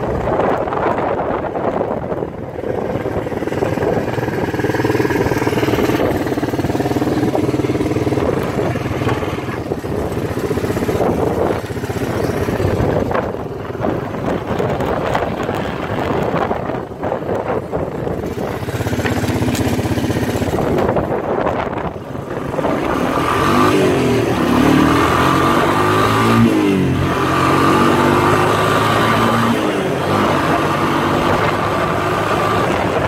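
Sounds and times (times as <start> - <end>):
atv engine idling: 0.0 - 25.3.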